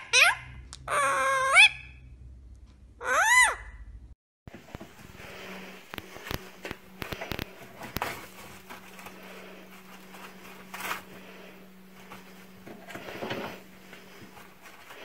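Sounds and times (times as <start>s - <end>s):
steady low hum: 3.8s - 15.0s
paper rustling: 4.5s - 15.0s.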